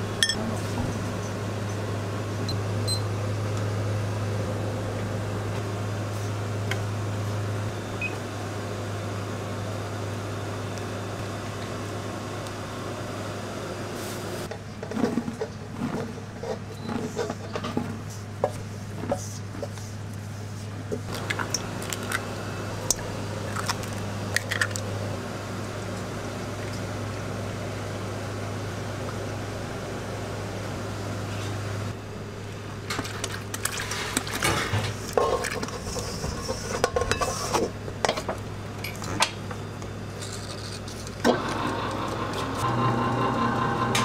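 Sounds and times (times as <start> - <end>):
utensils clinking against metal bowl: 0.2 - 0.4
eggs cracking: 22.9 - 24.9
electric stand mixer running: 41.2 - 44.0.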